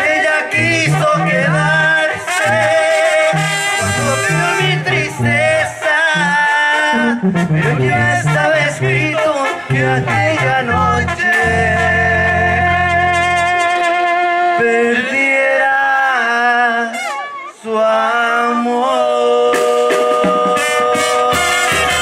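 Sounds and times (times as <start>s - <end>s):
brass band playing held chords: 0.0s - 14.6s, 19.6s - 22.0s.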